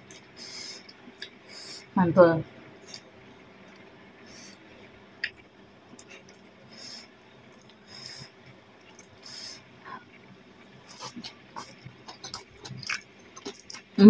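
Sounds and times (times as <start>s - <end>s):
breathy hisses: 0.4s - 0.8s, 6.7s - 7.1s, 9.2s - 9.6s
wet chewing: 7.4s - 7.9s, 10.8s - 14.0s.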